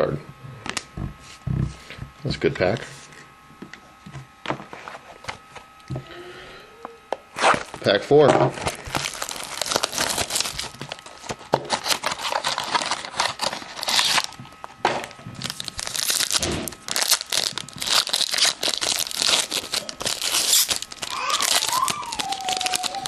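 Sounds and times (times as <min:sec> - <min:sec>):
foil wrapper tearing and crinkling: 0:07.3 - 0:14.8, 0:15.4 - 0:23.0.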